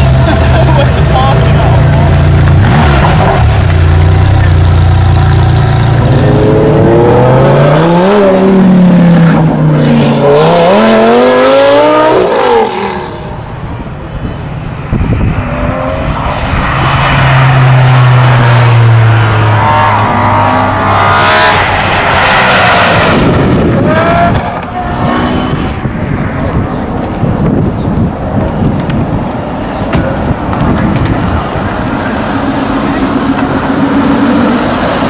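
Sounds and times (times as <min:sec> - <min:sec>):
sports car engine revving: 0:01.5 - 0:13.3, 0:14.9 - 0:25.8.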